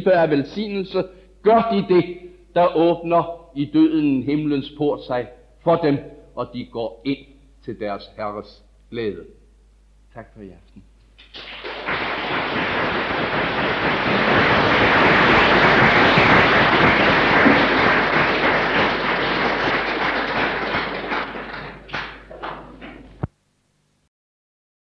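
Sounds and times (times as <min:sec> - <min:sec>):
audience applauding: 0:11.2 - 0:23.3.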